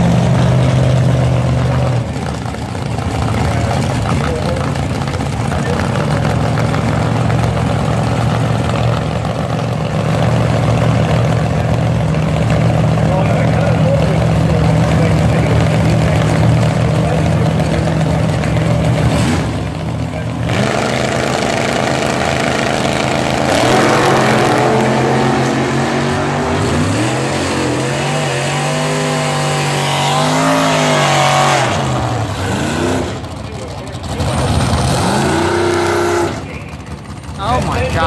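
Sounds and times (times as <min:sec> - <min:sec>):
car engine at high revs: 0:00.0 - 0:38.0
drag racing engines revving: 0:00.0 - 0:38.0.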